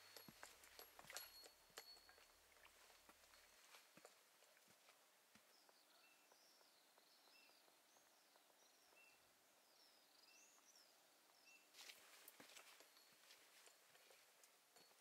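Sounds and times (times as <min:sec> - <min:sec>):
faint warbling bird song: 0:05.4 - 0:12.0.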